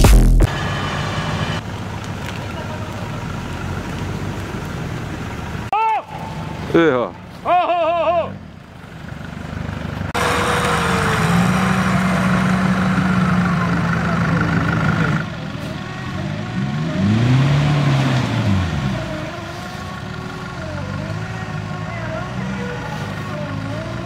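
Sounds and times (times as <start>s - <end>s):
off-road vehicle engine revving: 9.2s - 24.0s.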